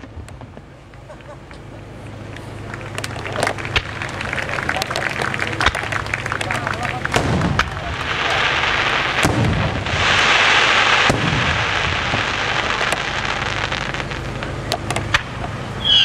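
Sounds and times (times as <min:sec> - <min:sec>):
firework shells bursting: 0:01.6 - 0:16.0
loud rushing hiss: 0:06.9 - 0:16.0.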